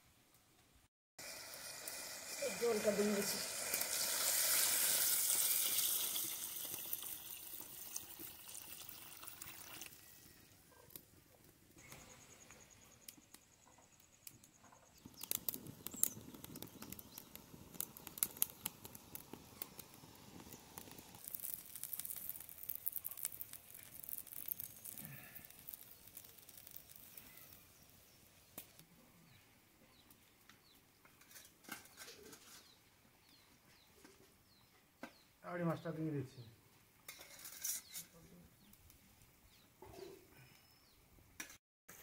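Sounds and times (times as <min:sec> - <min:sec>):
wood fire crackling: 0:00.3 - 0:34.2
curry boiling and bubbling: 0:01.2 - 0:11.8, 0:14.4 - 0:30.0.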